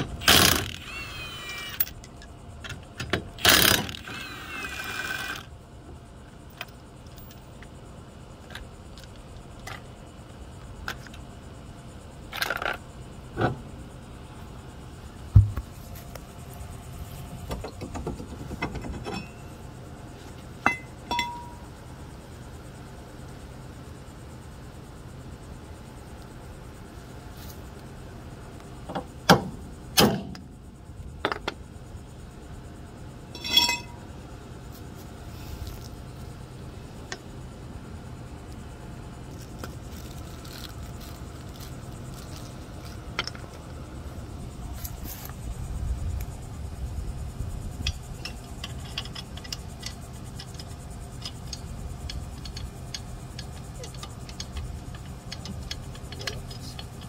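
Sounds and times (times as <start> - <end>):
sharp metal knocks: 15.3 - 15.6
ringing metal clink: 20.6 - 21.7, 33.3 - 34.0
light metal clicking and tapping: 47.8 - 57.0.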